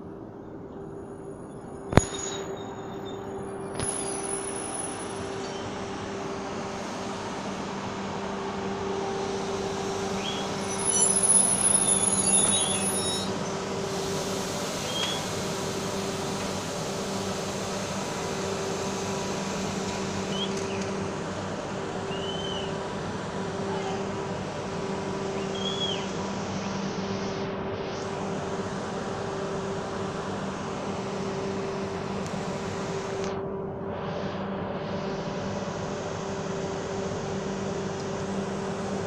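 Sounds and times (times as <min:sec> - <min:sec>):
excavator engine hum: 0:00.0 - 0:39.0
faint squeaks and clinks: 0:10.7 - 0:13.4.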